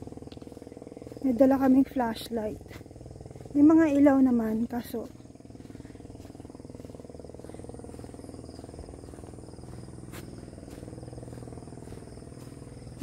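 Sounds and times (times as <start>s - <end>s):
frogs calling: 0.0s - 13.0s
insects trilling: 0.0s - 13.0s.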